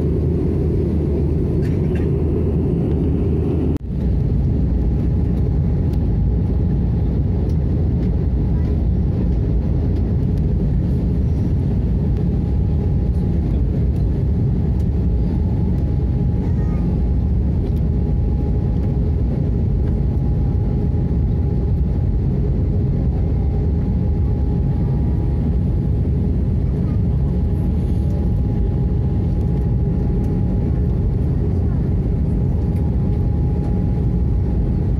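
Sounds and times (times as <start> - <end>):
airliner cabin engine and airflow rush: 0.0 - 34.9.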